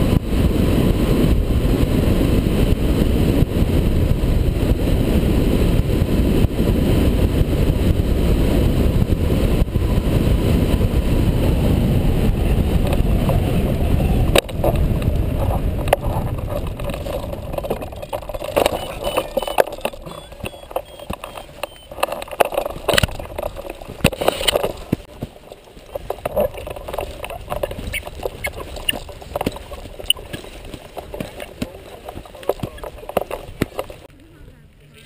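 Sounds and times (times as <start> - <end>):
wind rushing over microphone: 0.0 - 34.2
knocks and rustles: 14.4 - 34.1.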